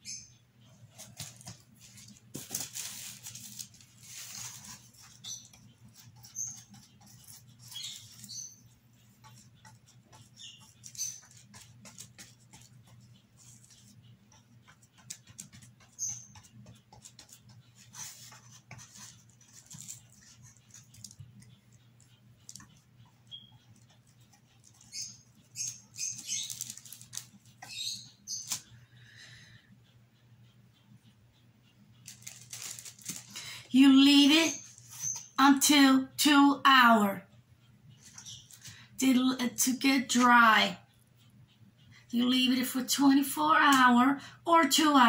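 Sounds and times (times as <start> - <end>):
paintbrush scratching on cardboard: 3.1 - 26.5, 34.4 - 35.3.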